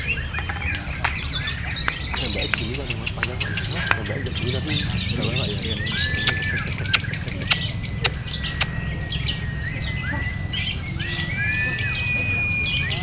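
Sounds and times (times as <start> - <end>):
lovebirds chirping: 0.0 - 13.0
whistle-like bird notes: 0.0 - 13.0
sharp clicks: 6.1 - 9.2.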